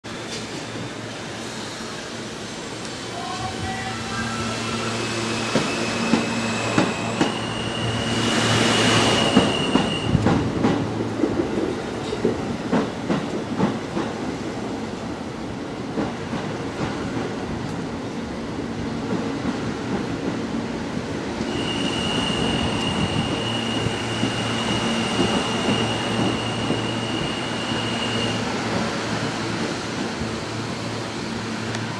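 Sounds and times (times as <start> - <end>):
subway train rumbling over rails: 0.0 - 31.9.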